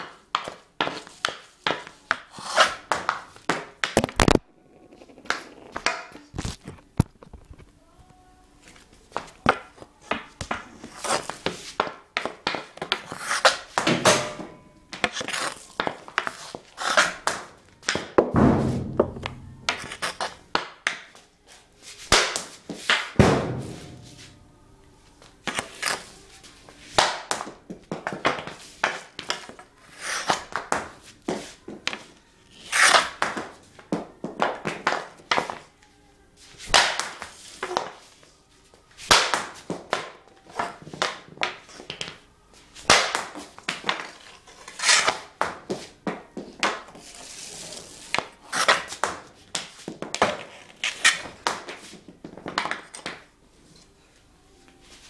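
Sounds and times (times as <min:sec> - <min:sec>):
puck hitting concrete wall: 0:00.0 - 0:04.4, 0:09.2 - 0:21.2, 0:22.0 - 0:24.3, 0:26.9 - 0:35.7, 0:36.6 - 0:38.1, 0:39.0 - 0:42.2, 0:42.8 - 0:47.0, 0:48.1 - 0:53.3
hockey stick slapping concrete: 0:09.2 - 0:21.2, 0:22.1 - 0:23.9, 0:26.9 - 0:35.6, 0:36.6 - 0:38.0, 0:39.0 - 0:42.2, 0:42.8 - 0:47.0, 0:48.1 - 0:53.2
puck cracking off stick: 0:22.1 - 0:23.9, 0:32.6 - 0:33.5, 0:39.1 - 0:42.2, 0:42.8 - 0:45.6, 0:48.1 - 0:51.9.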